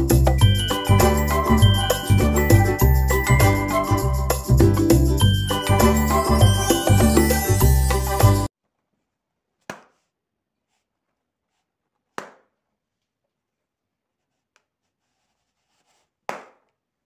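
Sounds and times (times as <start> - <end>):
balloons popping: 9.6 - 10.2, 12.0 - 12.6, 16.2 - 16.8.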